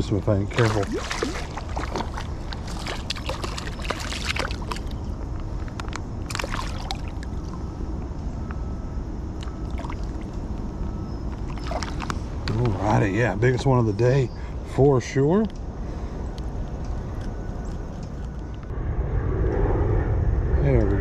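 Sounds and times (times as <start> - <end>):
steady low rumble: 0.0 - 21.0
creek water sloshing and splashing: 0.5 - 5.0, 6.3 - 7.5, 9.4 - 10.3, 11.4 - 12.7.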